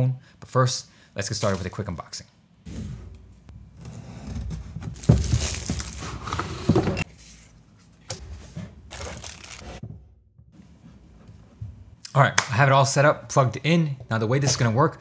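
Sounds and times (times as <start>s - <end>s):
packaging rustling and knocking: 4.4s - 7.1s.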